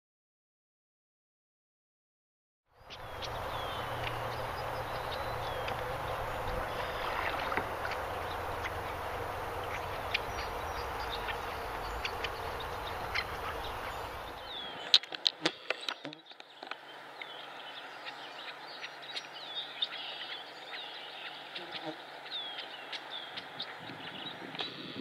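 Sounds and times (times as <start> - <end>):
water around kayak hull: 2.8 - 24.8.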